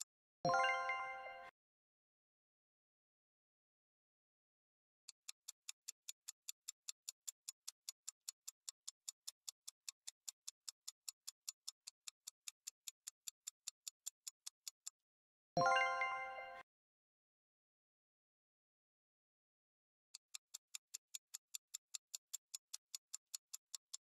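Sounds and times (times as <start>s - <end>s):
clock ticking: 5.2s - 14.9s, 20.2s - 24.0s.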